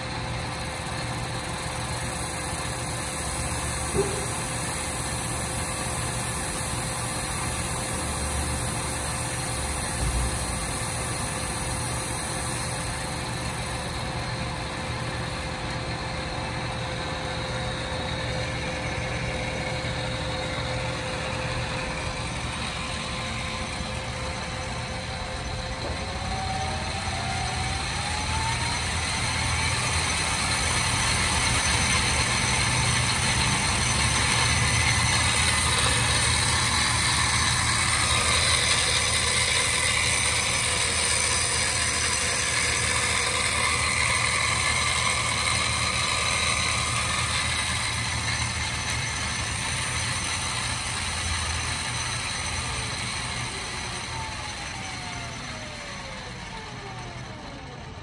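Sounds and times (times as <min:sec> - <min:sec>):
lathe running with whine: 0:00.0 - 0:58.0.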